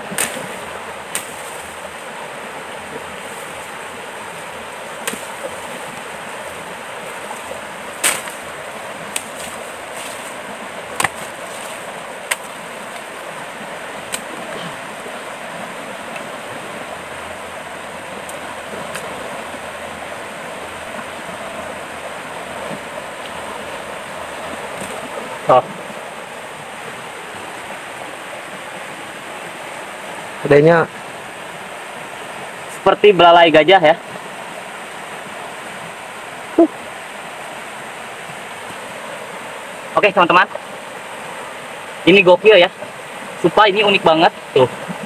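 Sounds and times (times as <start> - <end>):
stream rushing: 0.0 - 45.0
machete cutting bamboo: 0.1 - 0.5, 8.0 - 8.4, 11.0 - 12.6.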